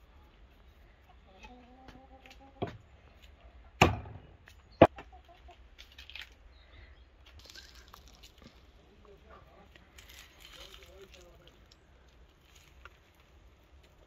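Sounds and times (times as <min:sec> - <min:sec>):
hen clucking: 0:01.0 - 0:02.8, 0:04.8 - 0:05.6
pomegranate pulled apart rustling: 0:07.3 - 0:08.7.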